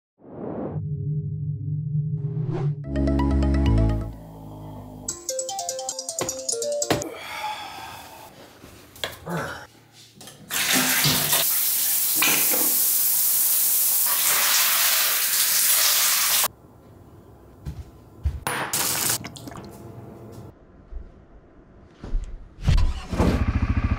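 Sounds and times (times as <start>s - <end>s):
tap water running: 10.5s - 16.5s.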